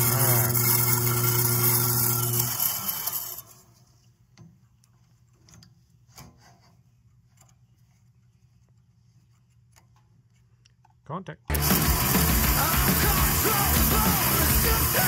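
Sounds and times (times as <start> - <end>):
bandsaw cutting through metal: 0.0 - 3.7, 11.5 - 15.0.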